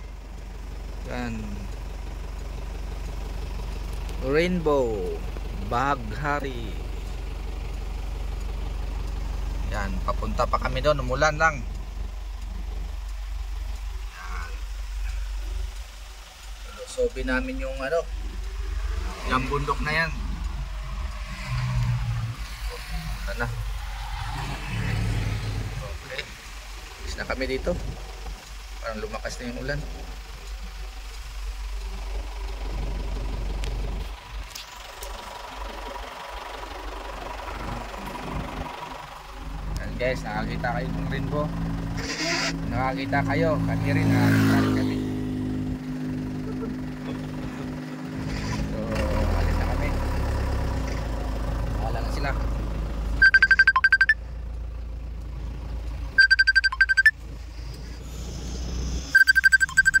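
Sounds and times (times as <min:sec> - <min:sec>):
truck engine rumbling: 0:00.0 - 1:00.0
vehicle idling hum: 0:00.0 - 1:00.0
rapid electronic beeping: 0:53.2 - 0:54.2, 0:56.2 - 0:57.1, 0:59.1 - 1:00.0.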